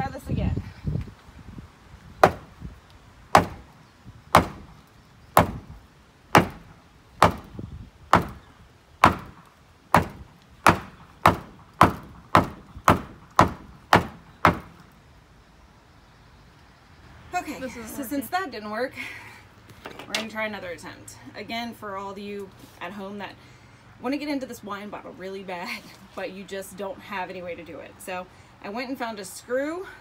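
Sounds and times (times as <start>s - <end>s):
shoe knocking on wooden post: 2.2s - 2.5s, 3.4s - 3.6s, 5.4s - 5.7s, 7.2s - 7.5s, 8.1s - 8.4s, 9.0s - 9.4s, 10.0s - 14.7s.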